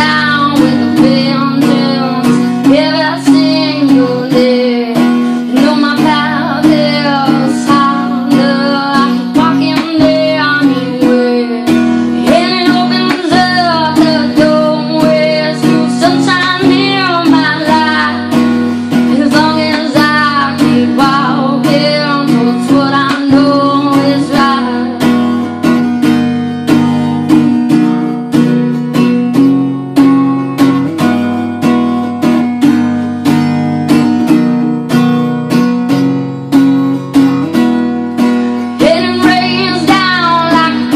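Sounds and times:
woman singing: 0:00.0 - 0:26.8, 0:37.2 - 0:40.9
acoustic guitar strumming: 0:00.0 - 0:40.9.

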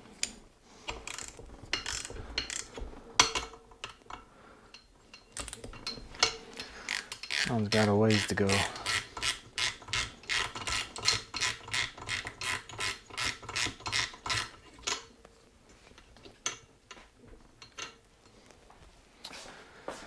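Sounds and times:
tool handling: 0:00.1 - 0:18.6
socket ratchet clicking: 0:00.9 - 0:02.8, 0:06.6 - 0:15.0.

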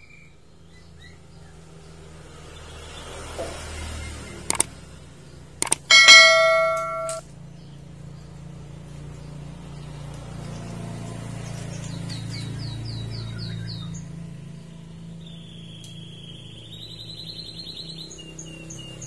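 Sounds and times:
mouse clicks: 0:05.6 - 0:05.9
bird chirping: 0:05.6 - 0:07.2
ringing bell chime: 0:05.9 - 0:07.2.

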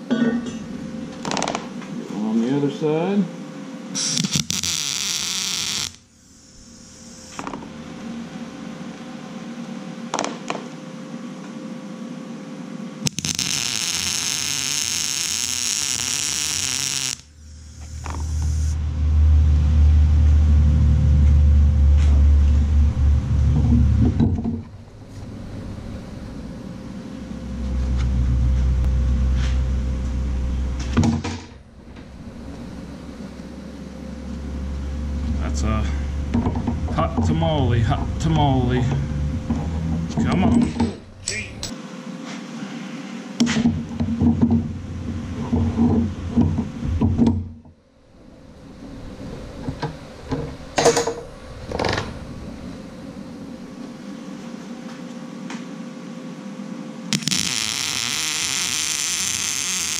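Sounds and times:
welding arc crackling: 0:04.0 - 0:07.5, 0:13.0 - 0:18.8, 0:57.1 - 0:59.9
loud low rumbles: 0:17.4 - 0:41.7, 0:48.0 - 0:54.5.

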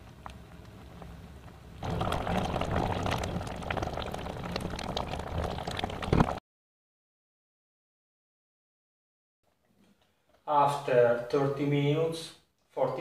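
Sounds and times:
jam bubbling and popping in a pot: 0:00.0 - 0:06.4.

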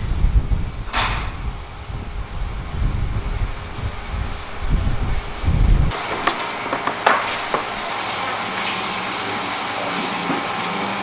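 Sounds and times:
wind buffeting microphone: 0:00.0 - 0:07.9.

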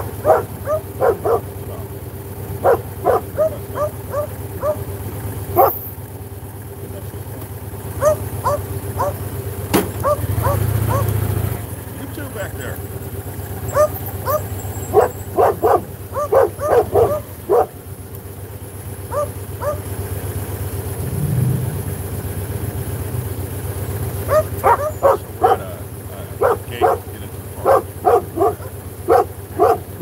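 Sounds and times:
dog barking: 0:00.0 - 0:02.0, 0:02.6 - 0:04.9, 0:05.5 - 0:05.9, 0:08.0 - 0:09.3, 0:10.0 - 0:11.2, 0:13.6 - 0:17.8, 0:19.0 - 0:19.9, 0:24.2 - 0:30.0
motorcycle engine humming: 0:00.0 - 0:30.0.

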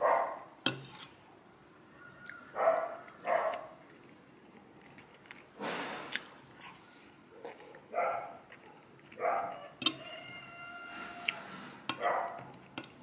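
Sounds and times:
dog barking: 0:00.0 - 0:00.5, 0:02.5 - 0:03.8, 0:07.9 - 0:09.8, 0:12.0 - 0:12.5.

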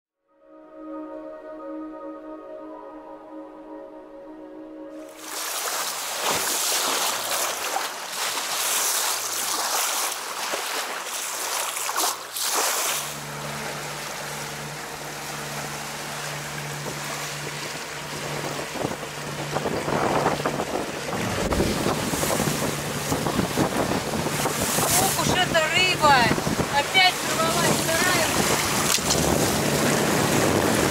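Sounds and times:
sea water rushing and splashing: 0:05.0 - 0:30.9
steady low hum: 0:13.0 - 0:24.4
wind buffeting microphone: 0:16.8 - 0:30.9.

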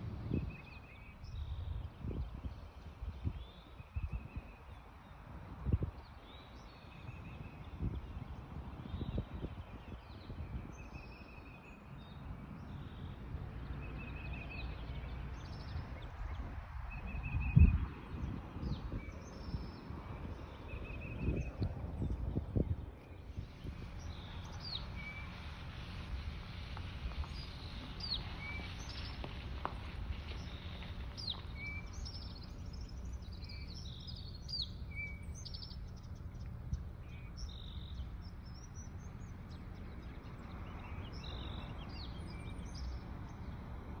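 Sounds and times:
steady low rumble: 0:12.5 - 0:44.0
birds chirping and whistling: 0:23.3 - 0:26.0, 0:26.8 - 0:43.0.

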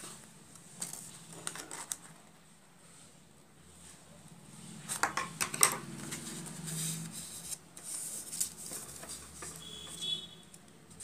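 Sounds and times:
paper rustling: 0:00.6 - 0:02.3, 0:06.0 - 0:10.0.

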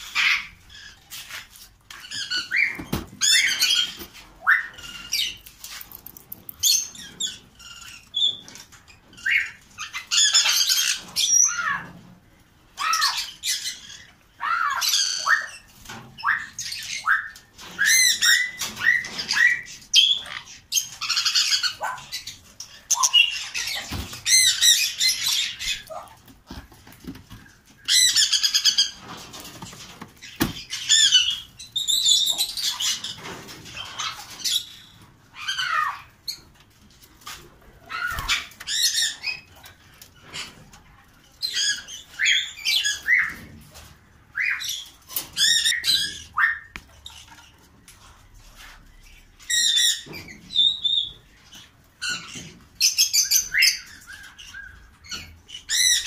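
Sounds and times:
budgerigars squawking and chattering: 0:12.8 - 0:26.1, 0:27.4 - 0:29.1, 0:30.2 - 0:36.5.

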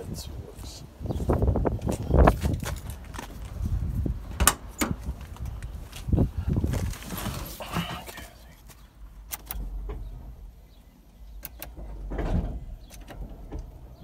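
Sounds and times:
rustling in car cabin: 0:01.8 - 0:08.9
low steady rumble: 0:05.0 - 0:14.0.

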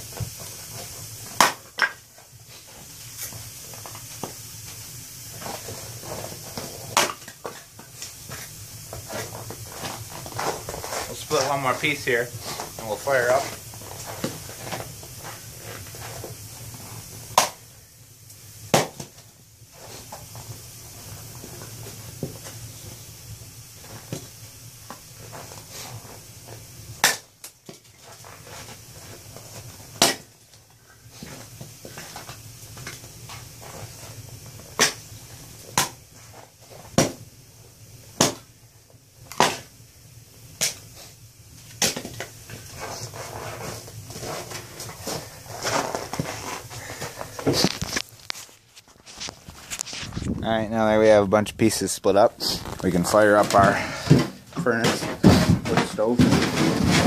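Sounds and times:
axe splitting firewood: 0:01.4 - 0:02.0, 0:05.4 - 0:16.3, 0:17.3 - 0:17.6, 0:18.7 - 0:19.2, 0:27.0 - 0:29.3, 0:29.9 - 0:30.4, 0:34.7 - 0:35.1, 0:35.7 - 0:36.0, 0:36.9 - 0:37.2, 0:38.2 - 0:38.5, 0:39.3 - 0:39.7, 0:41.8 - 0:43.1.

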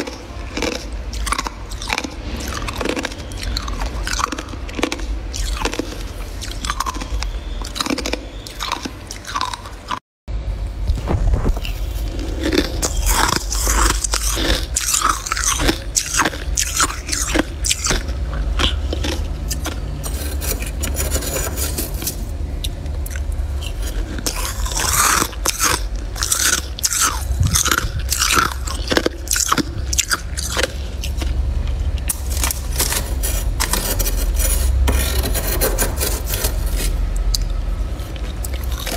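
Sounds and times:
low steady hum: 0:00.0 - 0:38.9
ice and frost crunching: 0:11.0 - 0:22.2, 0:23.0 - 0:31.4, 0:32.0 - 0:38.9
metal spoon scraping frost: 0:19.0 - 0:22.3, 0:32.1 - 0:38.9.

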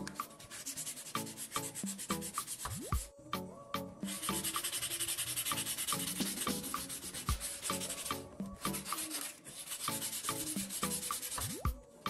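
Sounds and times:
foil rasping on knife blade: 0:04.2 - 0:11.5.

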